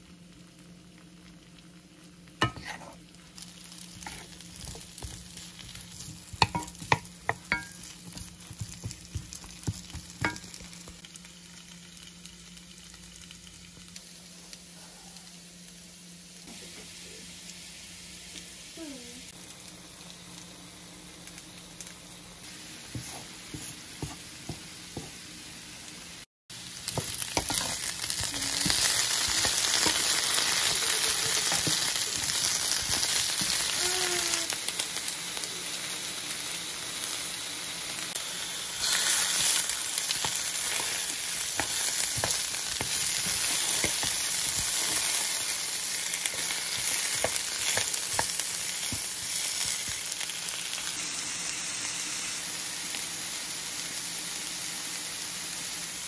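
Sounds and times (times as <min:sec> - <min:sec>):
meat sizzling in a skillet: 0:00.0 - 0:56.0
wooden spatula scraping a pan: 0:02.4 - 0:03.0.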